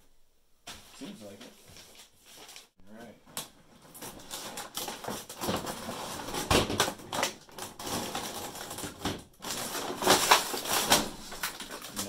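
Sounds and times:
plastic packaging crinkling: 3.8s - 12.0s.

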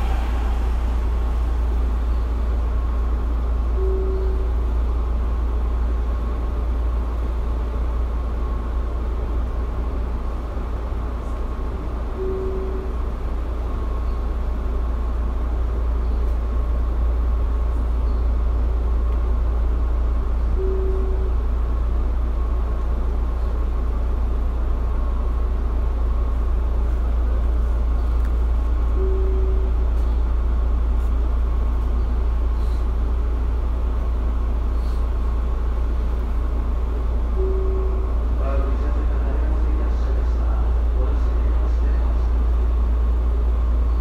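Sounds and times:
short mid-pitched tone: 0.0s - 4.5s
electric train humming: 0.0s - 44.0s
faint steady whine: 0.0s - 44.0s.

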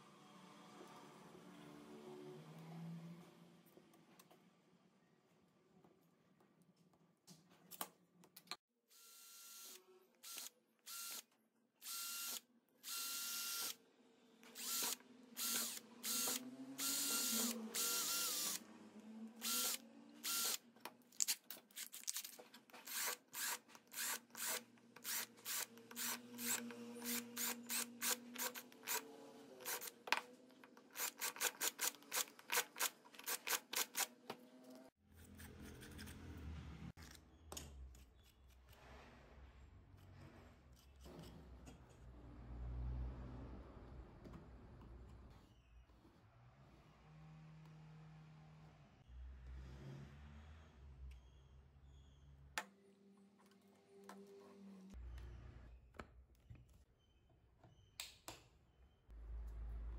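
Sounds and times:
cordless drill bursts: 9.0s - 11.2s, 11.8s - 13.8s, 14.5s - 18.6s, 19.4s - 20.6s, 22.8s - 30.0s.

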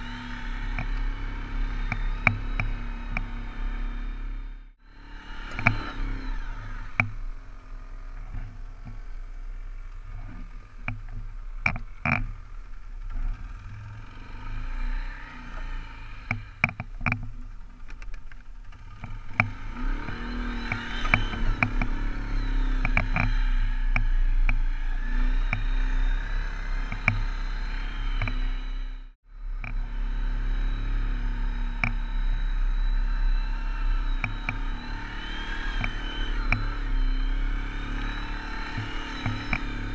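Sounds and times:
atv engine revving: 0.0s - 39.9s
knocks and rattles over bumps: 9.9s - 13.4s, 16.3s - 22.0s.

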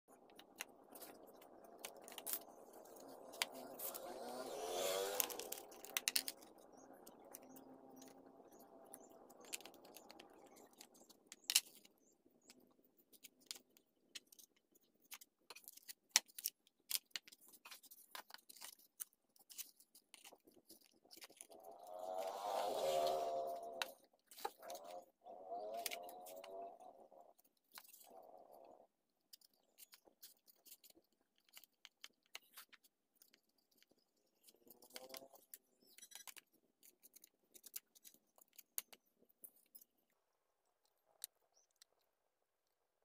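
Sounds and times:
low pitched hum: 21.6s - 27.2s.

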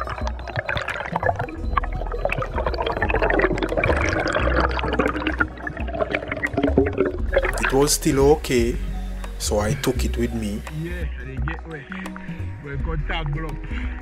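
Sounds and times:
underwater bubbles gurgling: 0.0s - 7.9s
water rushing: 0.0s - 8.7s.

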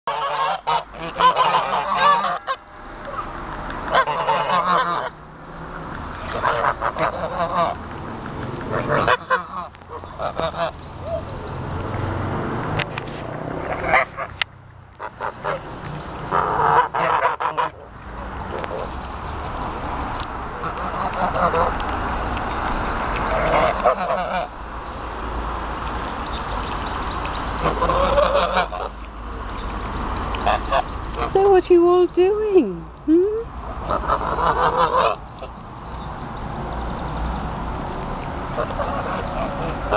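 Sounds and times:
geese honking: 0.1s - 3.3s, 3.9s - 5.2s, 6.2s - 7.8s, 8.6s - 11.3s, 13.6s - 14.3s, 15.0s - 17.9s, 20.6s - 21.8s, 23.1s - 24.5s, 27.6s - 29.1s, 30.3s - 31.5s, 33.8s - 35.5s, 38.5s - 39.9s.

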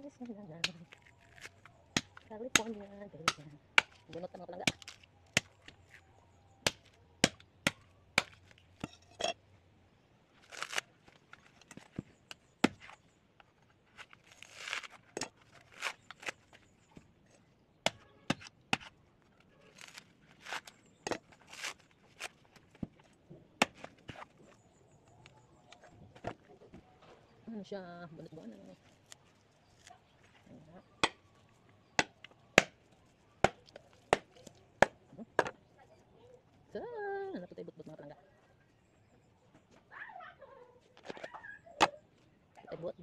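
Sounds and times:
husk fibres ripping: 0.2s - 2.7s, 10.3s - 11.9s, 13.8s - 17.0s, 19.3s - 22.8s
knife chopping coconut husk: 0.6s - 6.0s, 6.6s - 8.5s, 17.8s - 18.9s, 31.0s - 31.2s, 31.9s - 32.8s, 33.4s - 35.5s.

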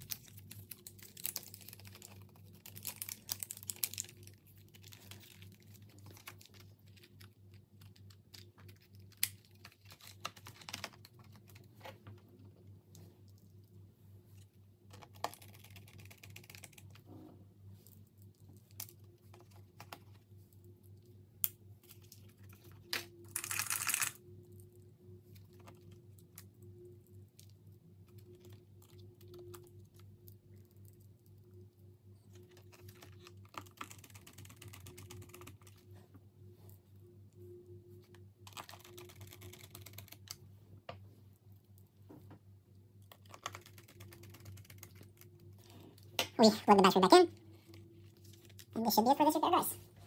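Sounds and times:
low steady hum: 0.0s - 50.0s.

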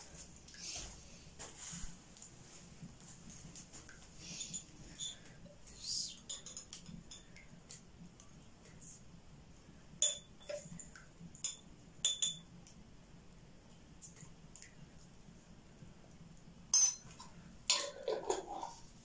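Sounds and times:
utensil clinking on steel saucepan: 16.8s - 17.1s.

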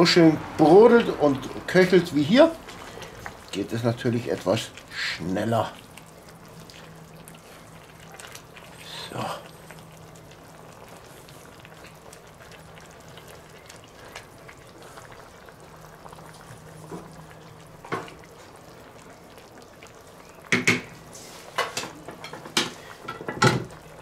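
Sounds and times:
stew bubbling in a pot: 0.0s - 24.0s
fine crackle: 2.4s - 22.2s
wooden spoon knocking a pot: 20.5s - 20.9s, 21.8s - 23.7s.

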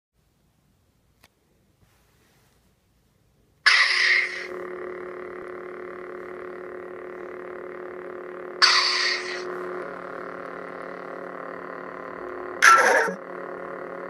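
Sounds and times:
lightsaber electronic hum: 3.6s - 14.0s
lightsaber power-up: 3.7s - 4.9s, 5.6s - 14.0s.

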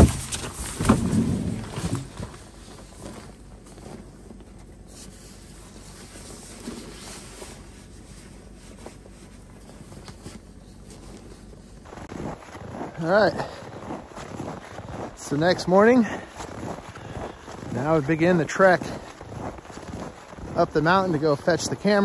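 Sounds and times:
low steady rumble: 0.0s - 22.0s
nylon jacket and backpack rustling: 0.0s - 22.0s.

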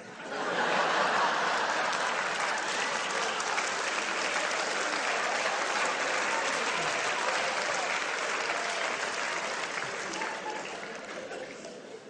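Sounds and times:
audience applauding: 0.3s - 11.9s.

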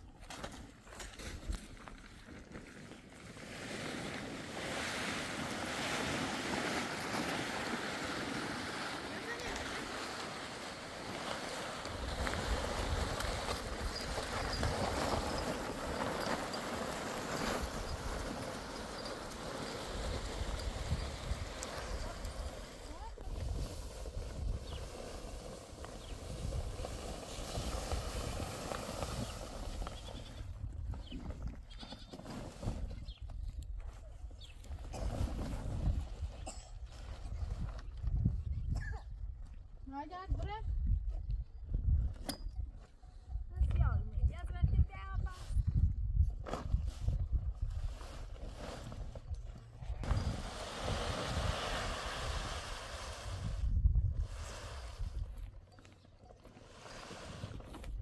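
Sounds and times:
plastic tarp dragged across dirt: 0.3s - 33.2s, 34.7s - 38.5s, 46.4s - 55.7s, 56.4s - 58.0s
wind rumble on microphone: 11.8s - 55.7s, 57.4s - 58.0s.

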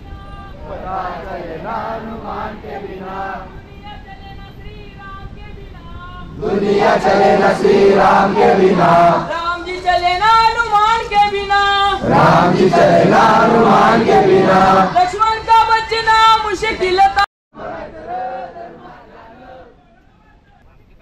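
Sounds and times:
men chanting in unison: 0.6s - 3.5s, 6.4s - 9.3s, 12.0s - 15.1s.

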